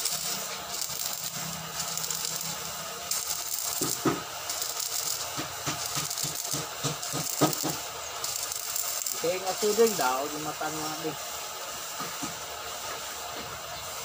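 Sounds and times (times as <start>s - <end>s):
sharp welding pops: 0.0s - 11.0s
welding arc crackling and sizzling: 0.0s - 14.0s.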